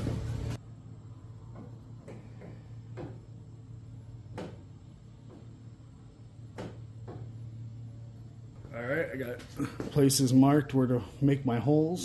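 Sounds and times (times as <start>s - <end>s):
light knocks and clunks: 4.3s - 5.5s, 6.5s - 7.4s.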